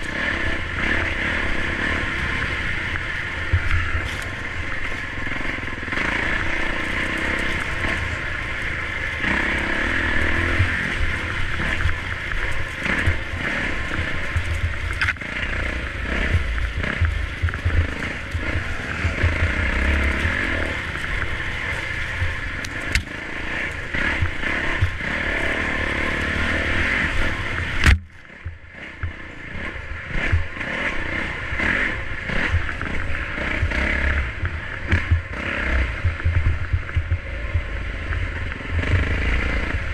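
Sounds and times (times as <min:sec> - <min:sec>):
dirt bike engine running: 0:00.0 - 0:39.9
rattling and scraping: 0:06.2 - 0:30.5
sharp click: 0:27.8 - 0:28.2.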